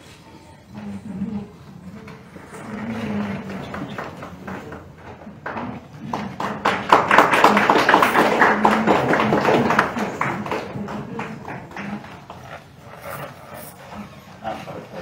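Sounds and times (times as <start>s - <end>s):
crowd applause: 2.5s - 13.2s.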